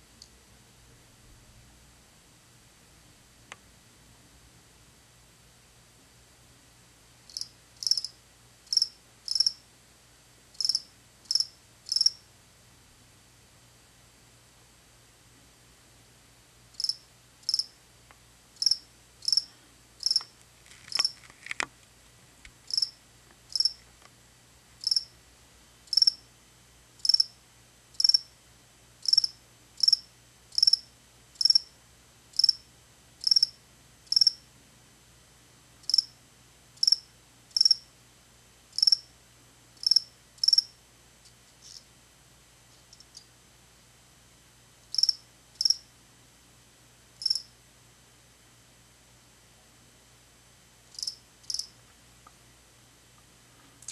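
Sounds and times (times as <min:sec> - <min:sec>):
cricket chirping: 0:07.3 - 0:09.6, 0:10.6 - 0:12.2, 0:16.8 - 0:17.8, 0:18.6 - 0:20.3, 0:22.7 - 0:23.8, 0:24.8 - 0:25.1, 0:25.9 - 0:26.2, 0:27.0 - 0:27.4, 0:28.0 - 0:28.3, 0:29.0 - 0:31.7, 0:32.4 - 0:32.6, 0:33.2 - 0:34.4, 0:35.9 - 0:36.2, 0:36.8 - 0:37.9, 0:38.8 - 0:39.1, 0:39.8 - 0:40.8, 0:44.9 - 0:45.9, 0:47.2 - 0:47.6, 0:50.9 - 0:51.8.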